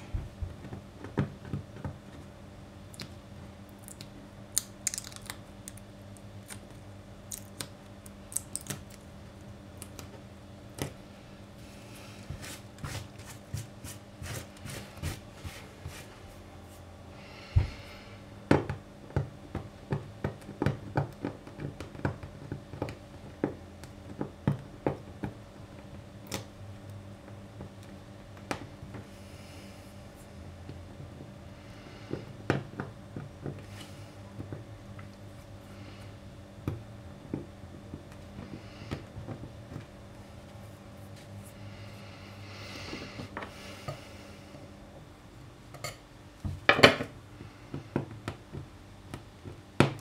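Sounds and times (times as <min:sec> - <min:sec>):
plastic flakes cracking off: 0:03.8 - 0:05.8, 0:06.4 - 0:09.1.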